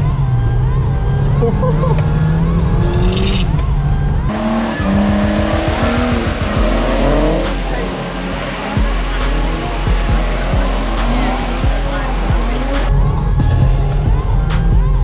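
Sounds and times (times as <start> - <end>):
car engine revving: 0.0 - 15.0
tyres skidding through water: 4.3 - 13.0.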